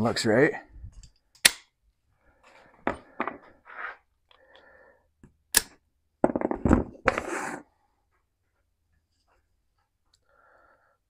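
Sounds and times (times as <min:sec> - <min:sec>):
rustling scrape: 0:03.5 - 0:04.0, 0:07.0 - 0:07.7.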